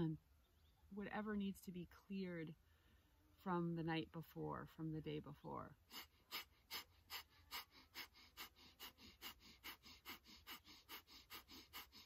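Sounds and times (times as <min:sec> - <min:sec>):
rapid forceful nasal exhales: 0:05.8 - 0:12.0.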